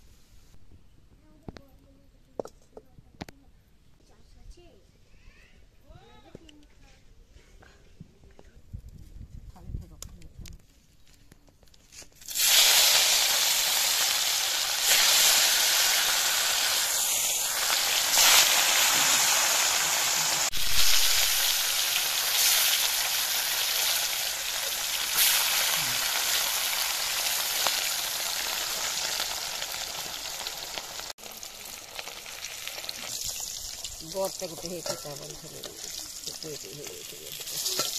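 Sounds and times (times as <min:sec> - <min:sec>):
fish sizzling in hot oil: 0:12.2 - 0:37.9.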